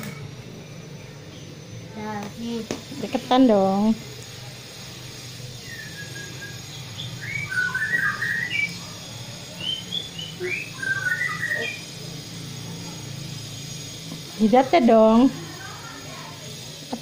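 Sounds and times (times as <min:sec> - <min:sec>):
steady low hum: 0:00.0 - 0:17.0
bird chirping and twittering: 0:04.9 - 0:17.0.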